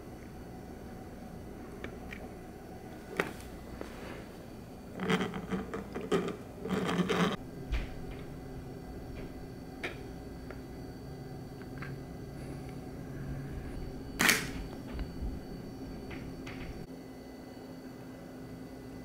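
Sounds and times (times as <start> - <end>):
plastic grinding against plastic: 4.9 - 7.4.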